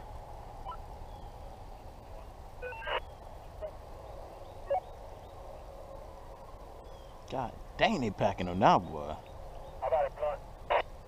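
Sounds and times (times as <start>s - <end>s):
low wind rumble: 0.0s - 11.0s
distant hounds baying: 2.6s - 7.2s.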